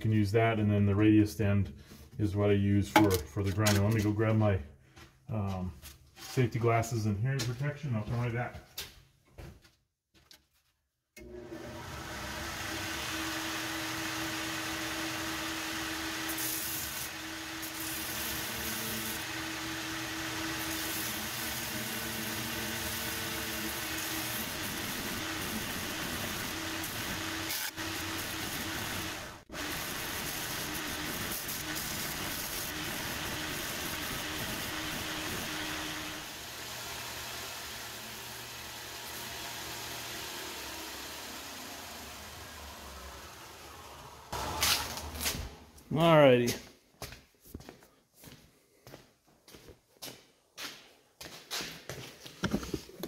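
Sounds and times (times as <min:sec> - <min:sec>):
belt grinder motor hum: 0:11.2 - 0:45.2.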